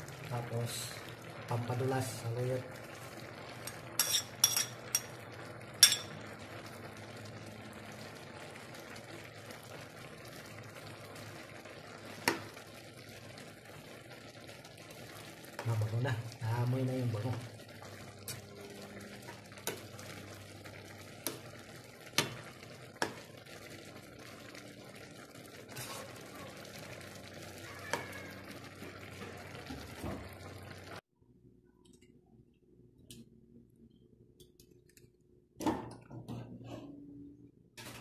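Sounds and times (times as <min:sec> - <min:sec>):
cooking pot hissing: 0:07.4 - 0:31.0.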